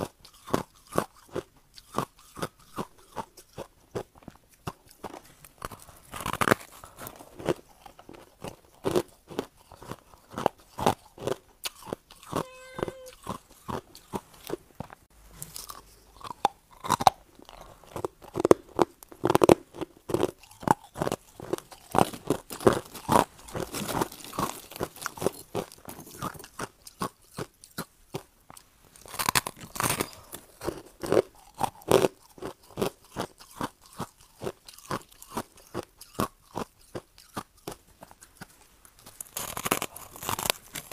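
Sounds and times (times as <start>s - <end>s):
chewing crushed ice: 0.0s - 40.9s.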